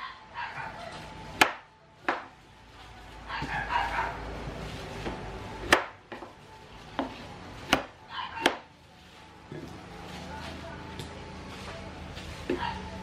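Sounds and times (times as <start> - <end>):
soft handling noise: 8.7 - 13.0.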